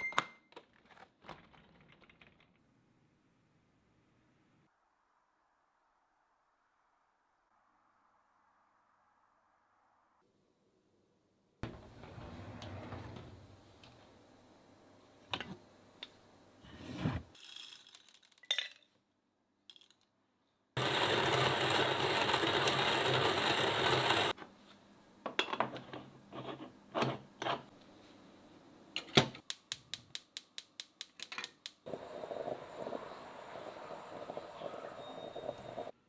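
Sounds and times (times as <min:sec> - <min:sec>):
gas burner hissing: 0:31.9 - 0:35.9.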